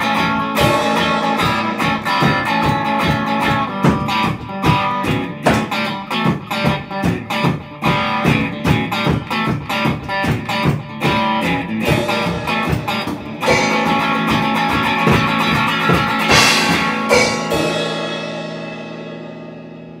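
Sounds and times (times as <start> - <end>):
drums: 0.0 - 20.0
strummed guitar: 0.0 - 20.0
cymbal crash: 0.6 - 2.9, 11.9 - 20.0.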